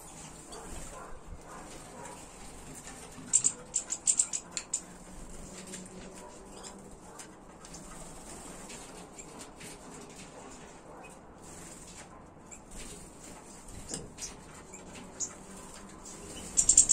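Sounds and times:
songbirds chirping: 0.0 - 9.2, 13.6 - 16.9.

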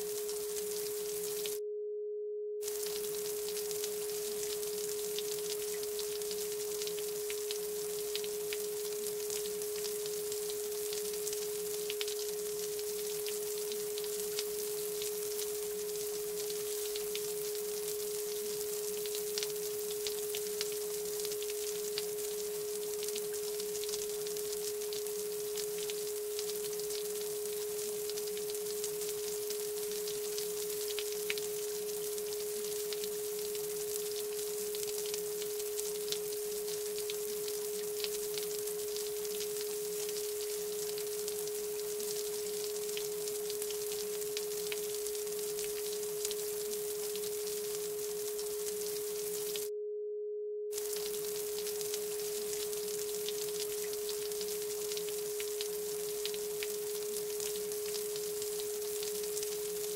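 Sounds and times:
faint hiss: 0.0 - 1.6, 2.6 - 49.7, 50.7 - 59.9
small crackles: 0.0 - 1.6, 2.6 - 49.7, 50.7 - 59.9
steady sine tone: 0.0 - 24.2, 47.6 - 53.2.

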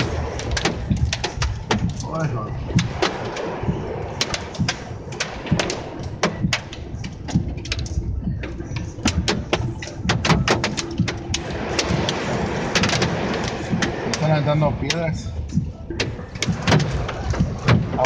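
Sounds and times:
hailstones knocking on car roof: 0.0 - 18.0
heavy rain and wind hiss: 0.0 - 18.0.

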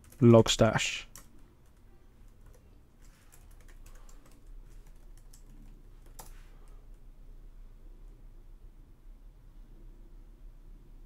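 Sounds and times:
keyboard typing: 0.0 - 0.4, 1.1 - 6.8.

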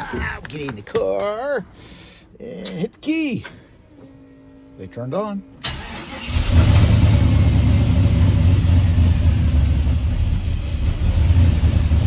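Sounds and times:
engine idling with low rumble: 6.3 - 12.0.

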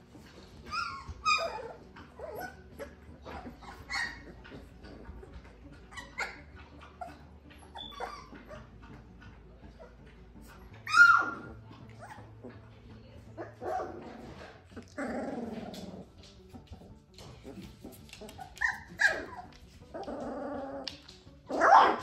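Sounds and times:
puppies yipping and barking: 0.1 - 12.6, 17.2 - 22.0
puppy yelp: 0.6 - 5.0, 5.8 - 8.7, 10.8 - 12.3, 17.6 - 22.0.

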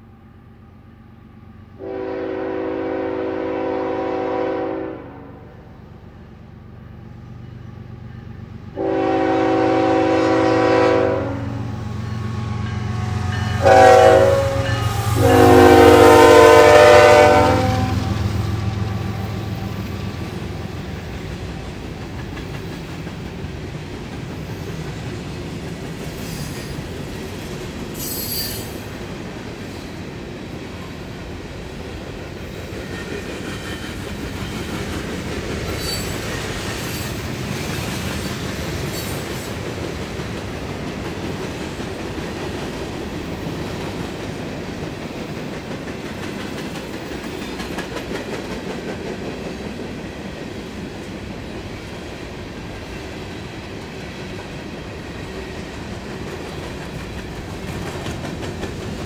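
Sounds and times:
train wheels rumbling on rails: 5.8 - 59.0
wheel squeals: 28.0 - 28.8, 35.7 - 37.2.

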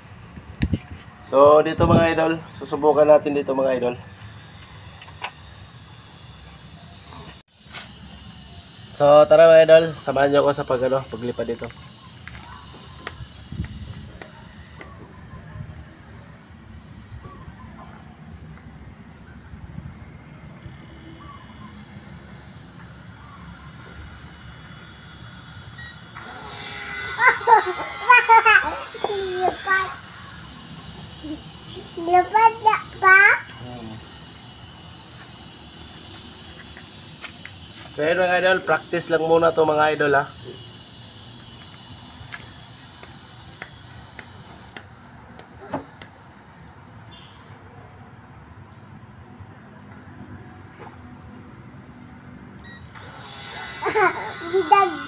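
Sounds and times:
insects chirring: 0.0 - 55.0
steady high hiss: 0.0 - 55.0
wind buffeting microphone: 1.7 - 2.2, 13.1 - 14.3.

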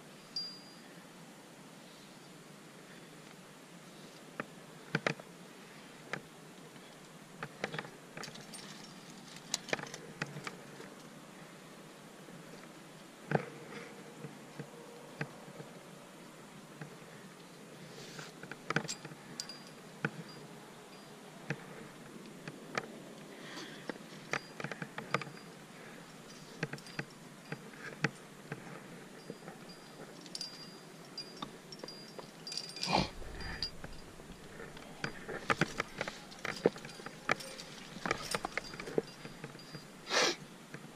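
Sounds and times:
climbing gear clicks and scrapes: 6.8 - 11.1, 23.6 - 40.0.

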